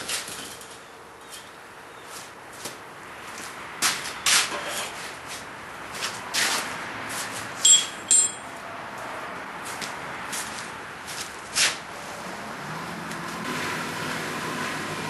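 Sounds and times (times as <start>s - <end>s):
metal tools scraping: 7.6s - 8.5s
metallic clinks: 7.6s - 8.6s.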